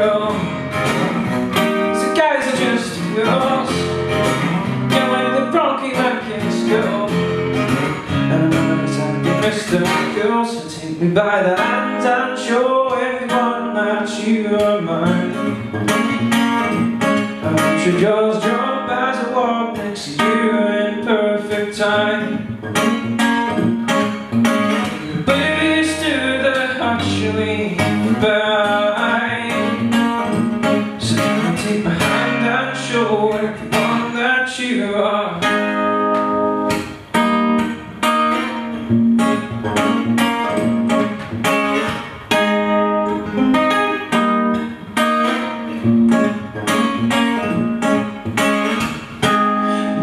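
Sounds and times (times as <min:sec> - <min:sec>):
man singing: 0:00.0 - 0:01.2, 0:01.8 - 0:16.2, 0:17.3 - 0:22.5, 0:24.8 - 0:36.1, 0:49.3 - 0:50.0
acoustic guitar strumming: 0:00.0 - 0:50.0.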